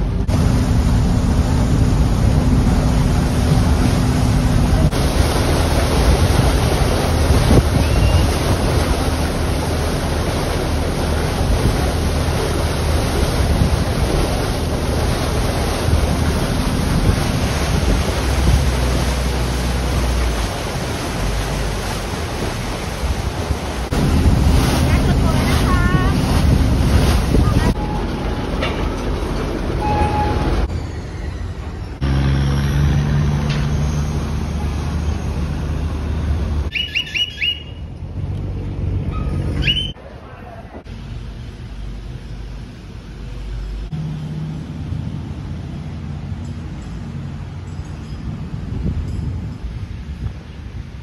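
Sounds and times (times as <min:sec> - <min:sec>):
wind buffeting microphone: 0:00.0 - 0:30.7, 0:47.3 - 0:51.0
boat engine hum: 0:00.0 - 0:51.0
water rushing along hull: 0:00.0 - 0:51.0.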